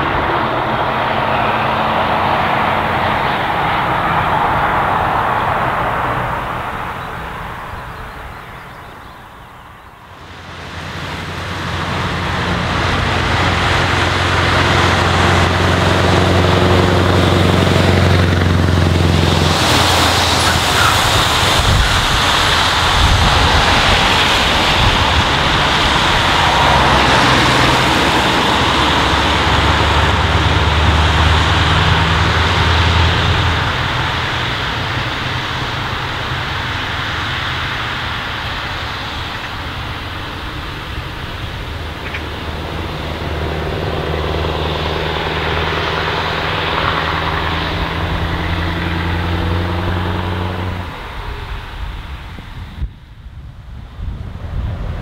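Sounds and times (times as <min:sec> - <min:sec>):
truck exhaust passing: 0:00.0 - 0:55.0
tyre hiss on wet road: 0:19.0 - 0:52.8.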